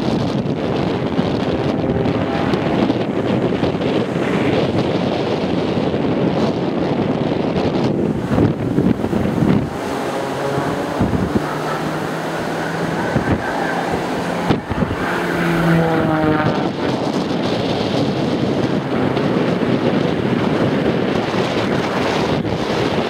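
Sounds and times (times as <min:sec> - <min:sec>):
propeller plane engine droning past: 0:00.0 - 0:23.0
surf: 0:00.0 - 0:23.0
wind buffeting microphone: 0:00.0 - 0:23.0.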